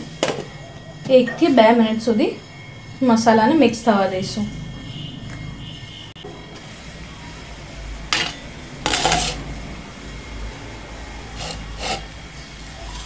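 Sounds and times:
glass lid clinking: 8.2s - 9.4s
glass lid scraping: 8.2s - 9.4s, 11.4s - 12.1s
spatula scraping in a pan: 8.2s - 9.4s, 11.3s - 12.2s.

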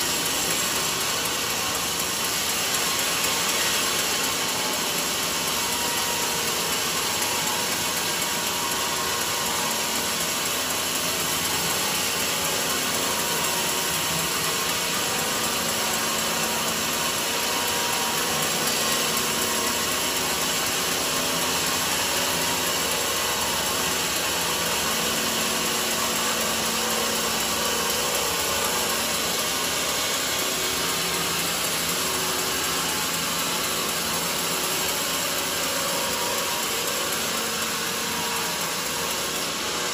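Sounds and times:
band saw cutting log: 0.0s - 39.9s.

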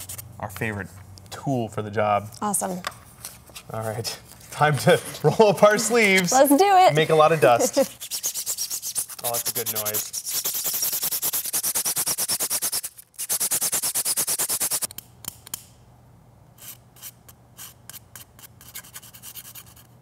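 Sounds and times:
sandpaper rubbing on plastic: 7.4s - 14.9s, 16.6s - 19.9s
needle file scraping: 7.5s - 14.9s.

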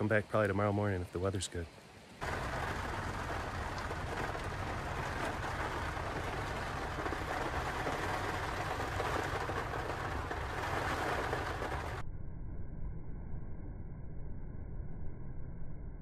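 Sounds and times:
heavy rain: 0.0s - 12.0s
hurricane wind: 0.0s - 12.0s.

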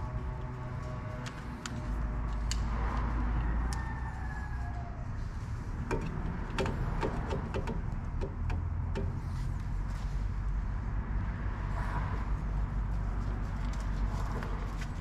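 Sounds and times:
low steady rumble: 0.0s - 15.0s
work light clicks and knocks: 5.8s - 9.2s.

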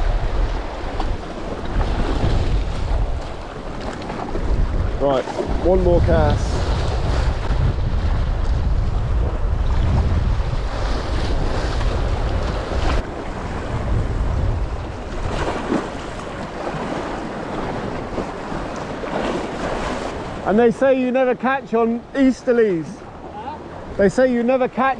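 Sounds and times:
wind buffeting microphone: 0.0s - 20.5s
sea splashing around rocks: 9.3s - 20.4s.

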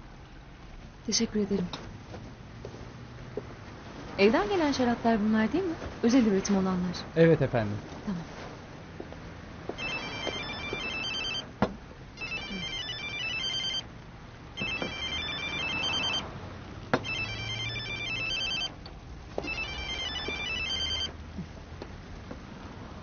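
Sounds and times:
phone ringtone melody: 9.8s - 11.5s, 12.2s - 13.9s, 14.6s - 16.2s, 17.0s - 18.8s, 19.4s - 21.1s.

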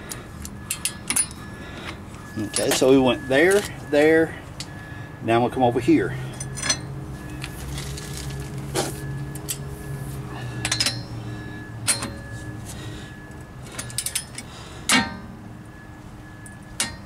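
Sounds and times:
steady low hum: 0.0s - 17.0s
metal clinks and clanks: 0.4s - 1.5s, 2.2s - 3.7s, 6.3s - 8.5s, 10.5s - 12.3s, 13.6s - 15.2s.

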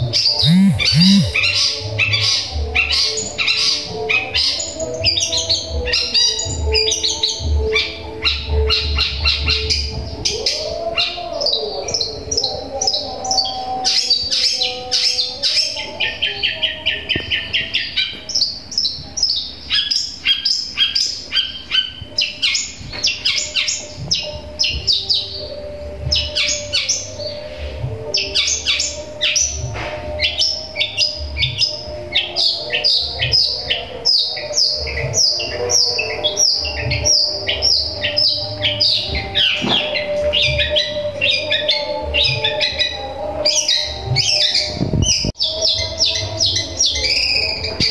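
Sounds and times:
shrike singing high chirps and trills: 0.0s - 9.9s.

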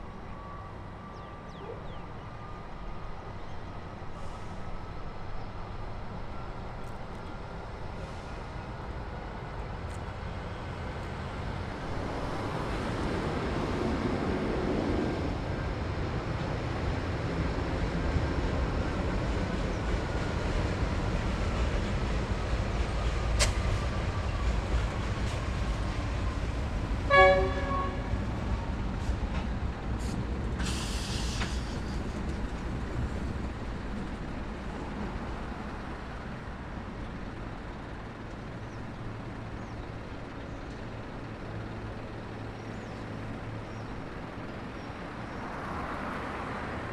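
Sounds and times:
diesel locomotive engines rumbling: 0.0s - 46.9s
locomotive horn toot: 27.1s - 28.3s.

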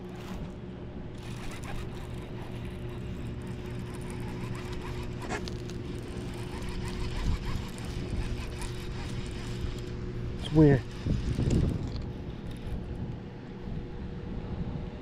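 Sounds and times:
electric motor humming: 0.0s - 13.6s
small squeaks and clicks: 1.2s - 12.7s.

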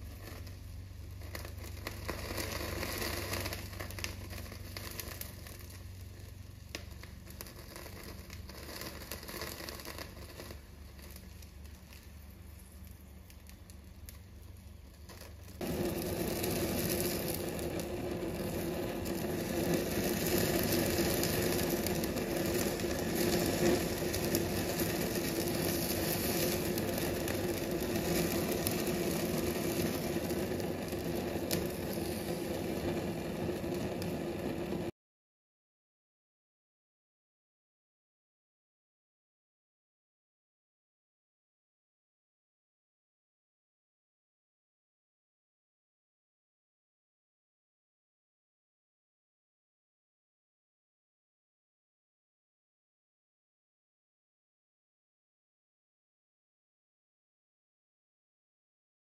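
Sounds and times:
chicken sizzling and crackling: 0.0s - 34.9s
gas burner rushing with hum: 0.0s - 34.9s.

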